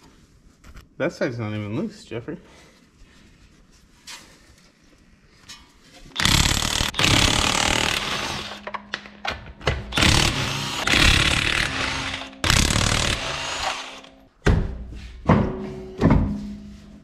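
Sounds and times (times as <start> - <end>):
impact wrench hammering: 6.2 - 14.2.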